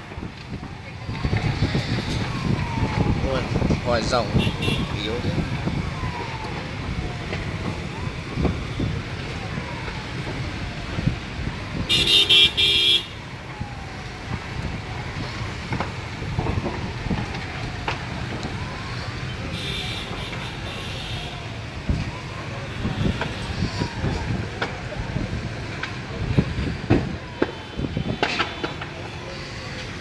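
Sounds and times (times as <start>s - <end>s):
road traffic hum: 0.0s - 30.0s
vehicle horn honking: 4.4s - 4.9s, 11.9s - 13.1s.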